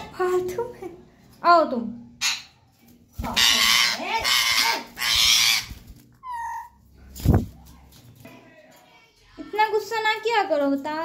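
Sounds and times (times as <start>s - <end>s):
parakeets screeching: 3.3s - 6.8s.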